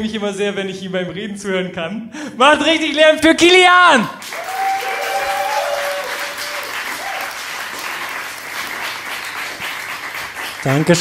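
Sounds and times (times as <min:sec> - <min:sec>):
audience applauding and cheering: 0:04.1 - 0:11.0.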